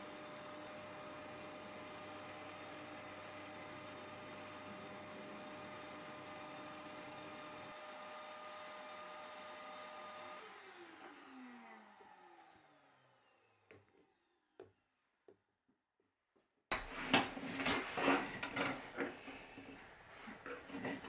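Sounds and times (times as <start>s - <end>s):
drill press motor spinning down: 0.0s - 14.6s.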